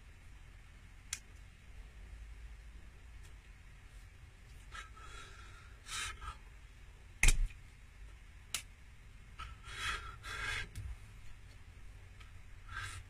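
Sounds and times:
hand slap: 7.2s - 7.6s.

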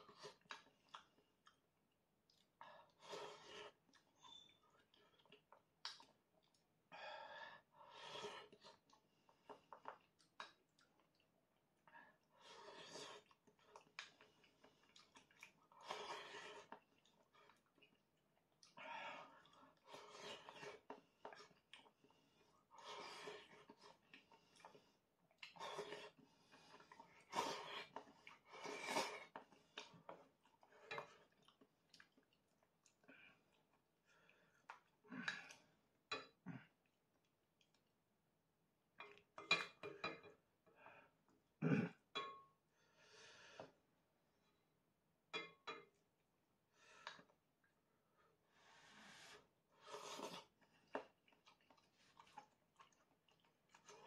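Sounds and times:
chewing: 0.1s - 1.7s, 3.6s - 6.7s, 8.4s - 11.9s, 12.8s - 35.6s, 49.9s - 54.0s
slurping noodles: 15.0s - 16.8s, 18.8s - 21.6s, 25.4s - 30.0s, 48.7s - 54.0s.

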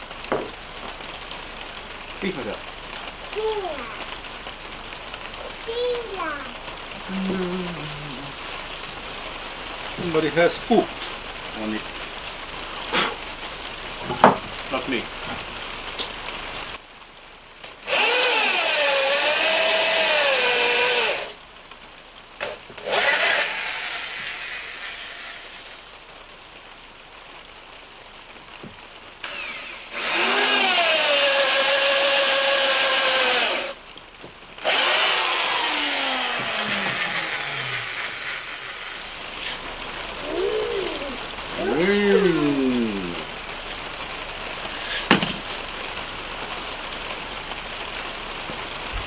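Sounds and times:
electric drill boring into log: 17.9s - 21.4s, 22.4s - 25.8s, 29.2s - 33.8s, 34.6s - 39.6s.

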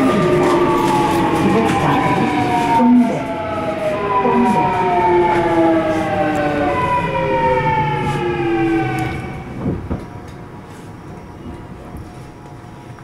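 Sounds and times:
train motors whining: 0.0s - 10.4s
wheels rumbling on track: 0.0s - 13.0s.

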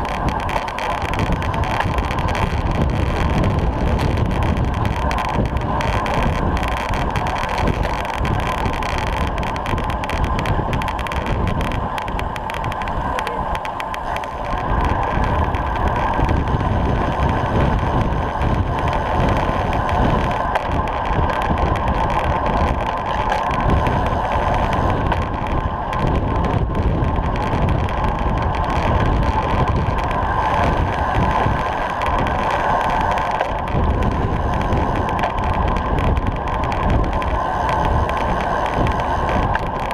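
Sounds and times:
tyre noise on tarmac: 0.0s - 39.9s
wind on microphone: 0.0s - 39.9s.

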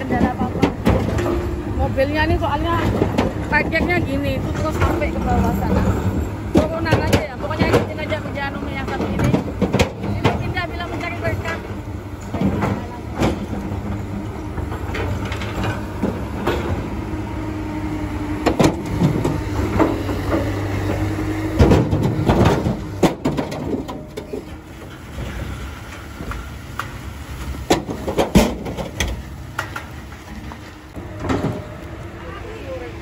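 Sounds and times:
excavator engine hum: 0.0s - 33.0s
loads thudding into truck bed: 18.4s - 26.5s, 27.4s - 31.8s.

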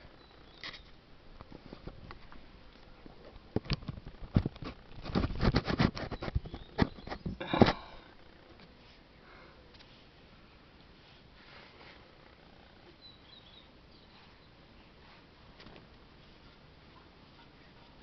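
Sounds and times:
clicks and bumps on camera: 0.6s - 8.0s.

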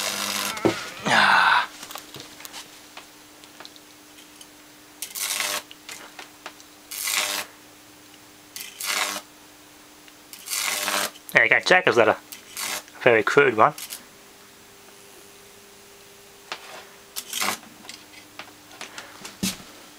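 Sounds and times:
electric arc buzzing: 0.0s - 2.2s, 5.0s - 7.6s, 8.5s - 9.4s, 10.2s - 18.2s
faint steady hum: 0.0s - 19.9s.

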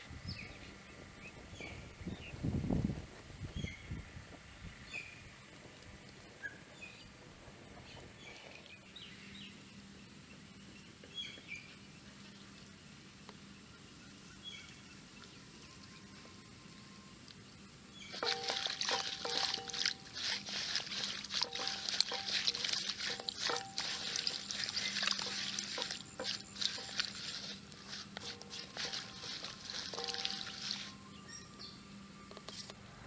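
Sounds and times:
small birds chirping: 18.0s - 31.8s.

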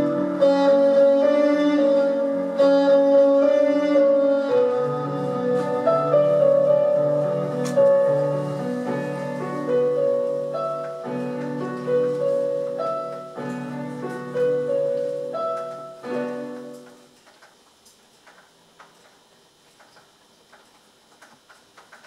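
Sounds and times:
slow piano music: 0.0s - 17.2s.

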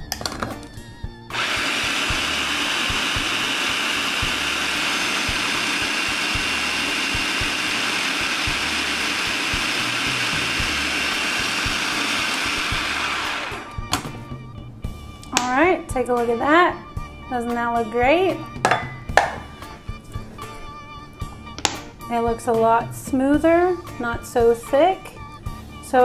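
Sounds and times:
food processor blade whirring: 1.3s - 14.2s.

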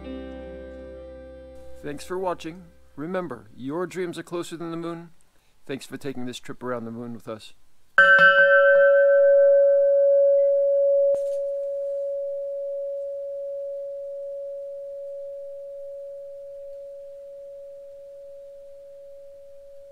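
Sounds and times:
tube chime ringing: 8.0s - 19.9s.

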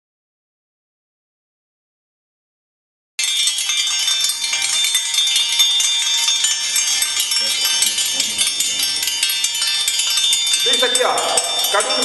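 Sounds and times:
high metallic jingling: 3.2s - 12.0s.

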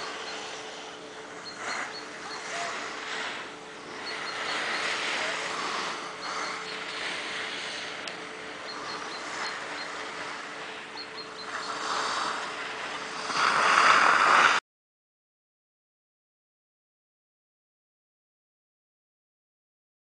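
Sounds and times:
wind on microphone: 1.4s - 14.6s
skis scraping over snow: 13.2s - 14.6s.

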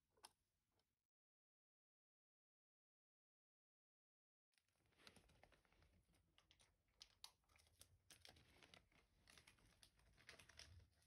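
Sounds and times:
faint small clicks and crackles: 4.6s - 11.0s.

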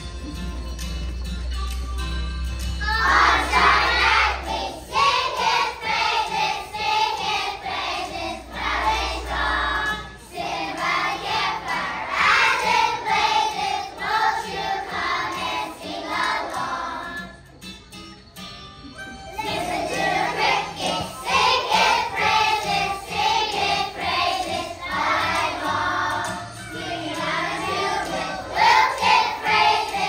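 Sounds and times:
children singing together: 2.8s - 17.5s, 19.2s - 30.0s.

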